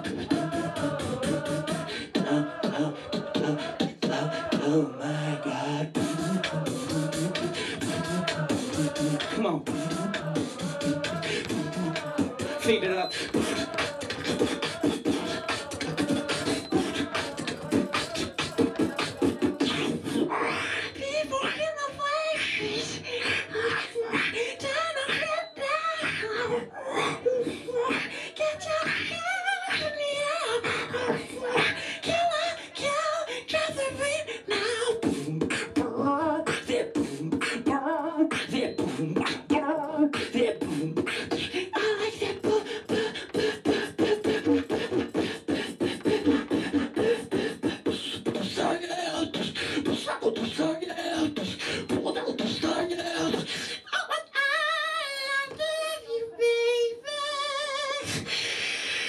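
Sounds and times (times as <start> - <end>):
beatboxing drum sounds: 0.0 - 4.7, 5.8 - 21.6, 26.0 - 53.9, 58.0 - 59.0
high-pitched wavering vocal tone: 0.0 - 31.8.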